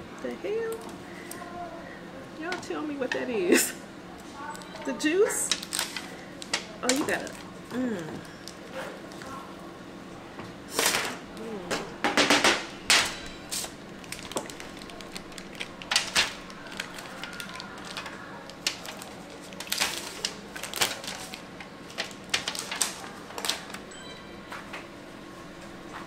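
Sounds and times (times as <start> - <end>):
aluminium foil pan crinkling: 5.3 - 7.5, 13.2 - 23.8
plastic package slit and peeled: 14.0 - 21.4.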